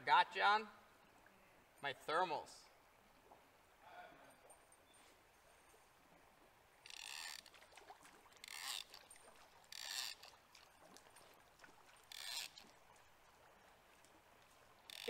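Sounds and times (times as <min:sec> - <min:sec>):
faint river flow: 0:00.0 - 0:15.0
fishing reel rasping: 0:06.8 - 0:07.5, 0:08.4 - 0:09.0, 0:09.7 - 0:10.4, 0:12.1 - 0:12.6.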